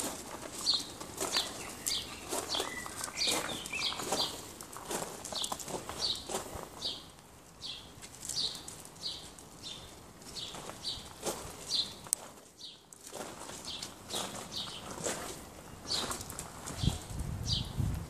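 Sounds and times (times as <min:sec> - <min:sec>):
small bird chirping: 0:00.6 - 0:04.4.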